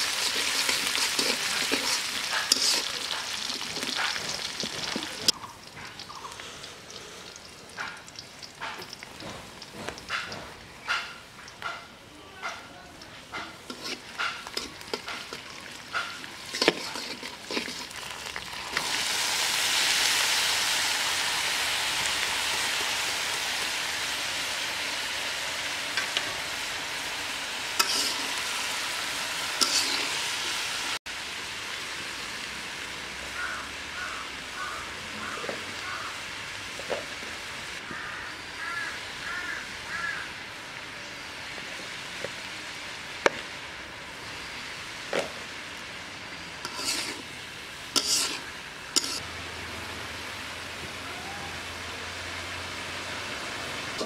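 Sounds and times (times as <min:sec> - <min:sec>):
metal spatula scraping pan: 0:00.0 - 0:05.4, 0:13.3 - 0:18.0, 0:27.8 - 0:28.4, 0:29.6 - 0:30.3, 0:46.6 - 0:47.3, 0:47.9 - 0:49.2
vegetables sizzling in hot oil: 0:00.0 - 0:11.7, 0:13.2 - 0:54.0.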